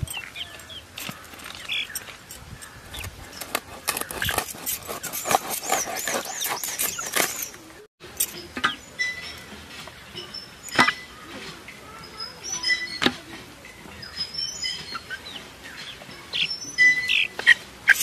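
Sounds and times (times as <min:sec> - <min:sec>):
bird warbling and chirping: 0:00.0 - 0:18.0
knife chopping fish on stone: 0:03.4 - 0:07.4.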